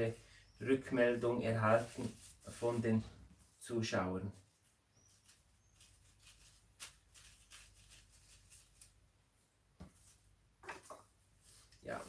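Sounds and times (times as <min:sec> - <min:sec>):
faint rustling of flower stems: 0:00.0 - 0:09.0.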